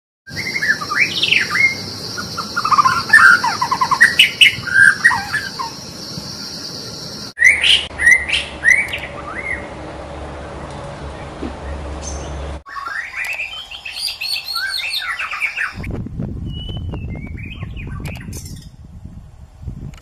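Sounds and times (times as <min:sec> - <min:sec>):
bird singing whistled phrases: 0:00.3 - 0:05.8, 0:07.4 - 0:09.7, 0:12.1 - 0:15.8, 0:16.4 - 0:18.6
steady high hiss: 0:00.4 - 0:07.4
rising whistled notes: 0:12.7 - 0:18.1.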